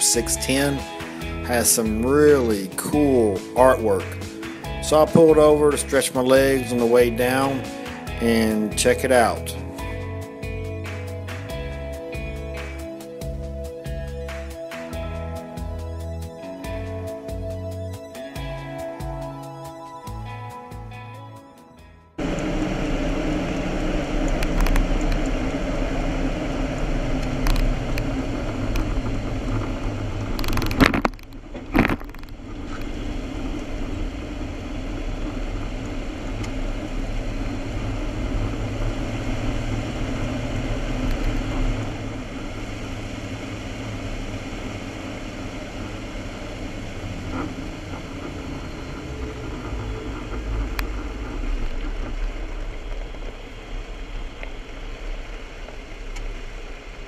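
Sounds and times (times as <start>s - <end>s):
vehicle road noise: 0.0s - 17.7s, 22.1s - 57.0s
loud thumps: 4.8s - 5.8s, 30.2s - 32.8s.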